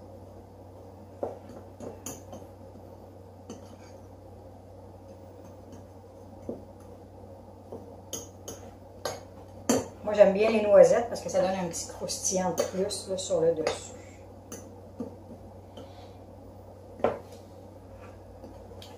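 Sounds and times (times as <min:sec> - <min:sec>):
steady low hum: 0:00.0 - 0:18.9
fork stirring dry mix in bowl: 0:01.3 - 0:04.3, 0:05.0 - 0:07.0.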